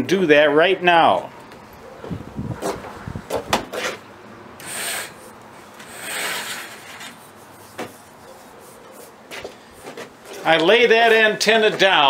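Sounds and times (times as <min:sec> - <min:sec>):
metal tubing scraping: 0:04.6 - 0:07.5.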